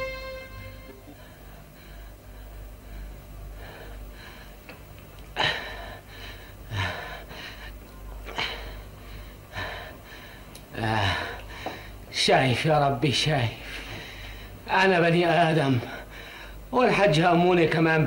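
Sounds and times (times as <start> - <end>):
low steady hum: 0.0 - 18.0
man gasping for breath: 5.4 - 12.0.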